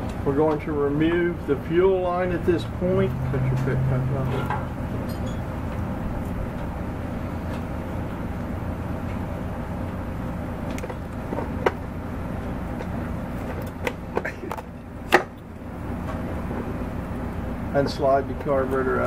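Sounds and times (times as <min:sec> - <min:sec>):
low background rumble: 0:00.0 - 0:19.0
clicks and knocks of carburetor parts: 0:12.8 - 0:15.4.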